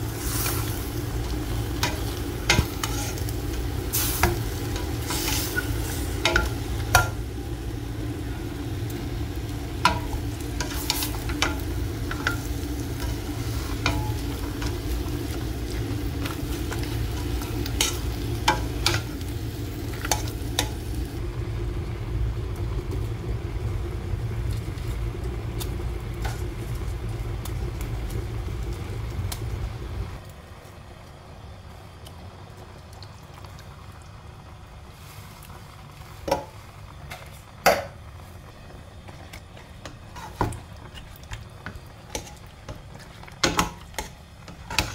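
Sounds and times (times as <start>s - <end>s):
meat sizzling in a pot: 0.0s - 30.2s, 34.5s - 44.9s
spoon scraping a pot: 2.6s - 3.2s.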